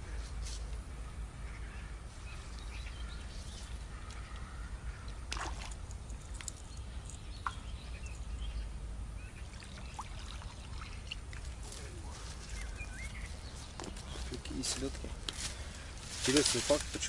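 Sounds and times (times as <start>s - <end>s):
faint water sounds: 3.7s - 13.6s.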